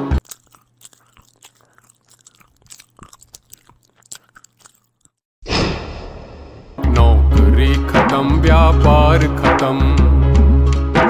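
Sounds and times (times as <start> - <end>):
person chewing crunchy food: 0.0 - 5.3
loud music: 6.6 - 11.0.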